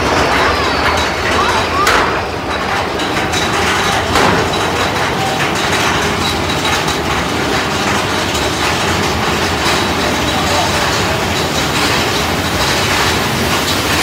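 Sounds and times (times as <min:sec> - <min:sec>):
coaster cars rattling on track: 0:00.0 - 0:14.0
track clack: 0:00.0 - 0:14.0.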